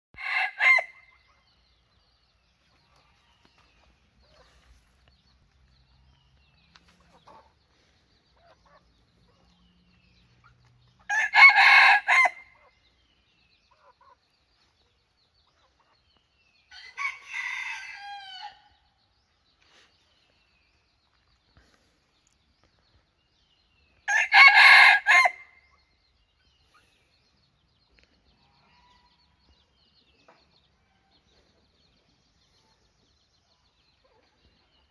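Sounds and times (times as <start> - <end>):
rooster crowing: 0.2 - 1.0, 11.1 - 12.4, 16.7 - 18.6, 24.1 - 25.4
softer falling rooster call: 16.7 - 18.6, 24.1 - 25.4.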